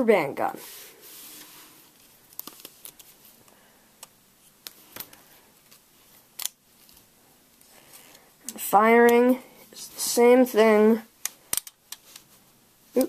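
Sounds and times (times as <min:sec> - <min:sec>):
plastic toy clicks and taps: 0:11.2 - 0:12.0.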